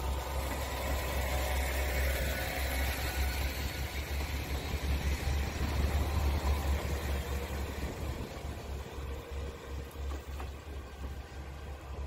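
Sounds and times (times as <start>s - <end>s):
diesel train engine rumbling: 0.0s - 12.0s.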